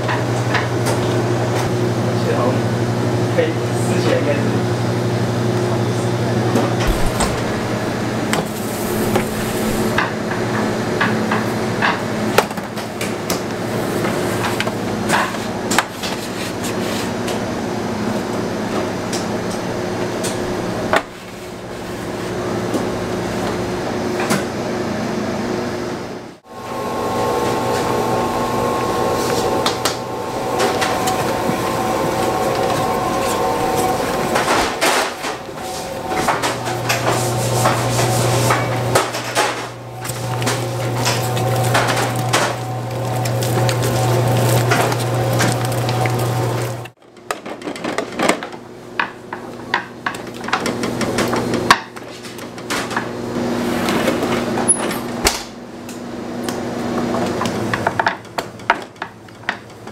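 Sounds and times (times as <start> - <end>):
machinery humming: 0.0 - 12.2, 24.8 - 47.0.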